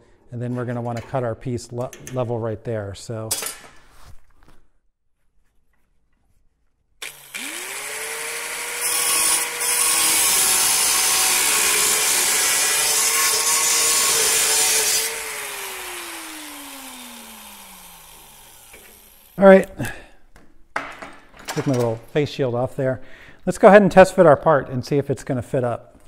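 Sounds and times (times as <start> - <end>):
cut-off wheel cutting steel: 7.0 - 19.4
cut-off wheel winding down: 7.1 - 8.8, 15.0 - 19.4.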